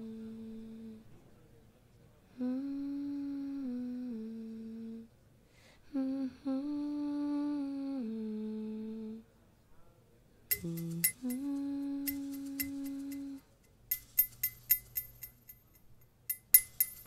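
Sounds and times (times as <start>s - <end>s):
person humming slow tune: 0.0s - 1.1s, 2.3s - 5.1s, 5.8s - 9.3s, 10.5s - 13.5s.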